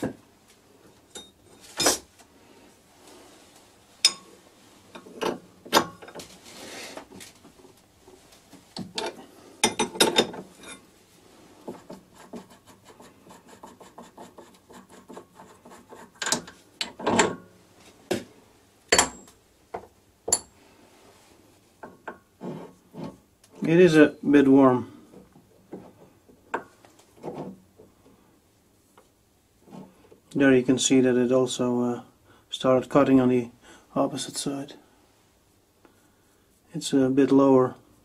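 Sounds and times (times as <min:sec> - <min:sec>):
metal clanks and knocks: 0:08.8 - 0:10.6, 0:16.2 - 0:17.5.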